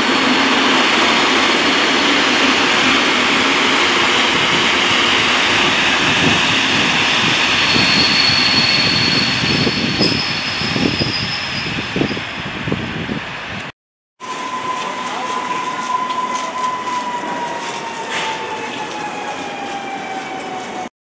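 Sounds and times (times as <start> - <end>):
electric train roaring: 0.0 - 20.9.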